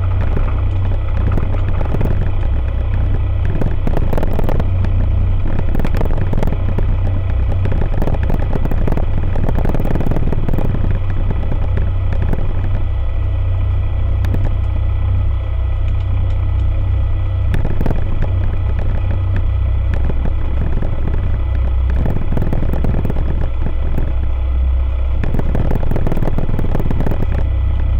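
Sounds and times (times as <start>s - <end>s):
aircraft engine and propeller drone: 0.0s - 27.9s.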